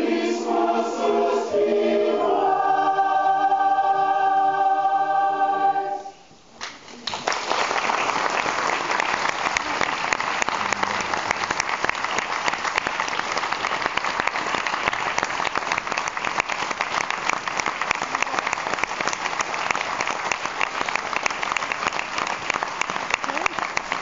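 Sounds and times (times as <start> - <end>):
audience applauding: 6.6 - 24.0
close hand clapping: 6.6 - 24.0.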